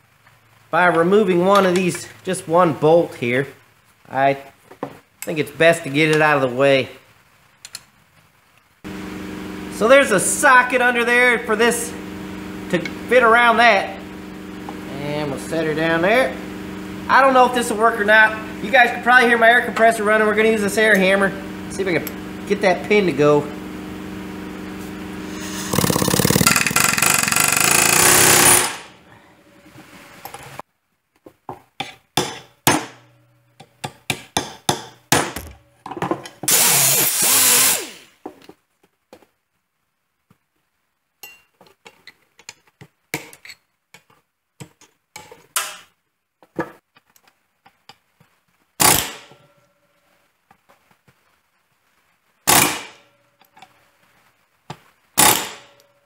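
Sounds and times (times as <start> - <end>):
air hammer chattering: 25.2 - 28.9.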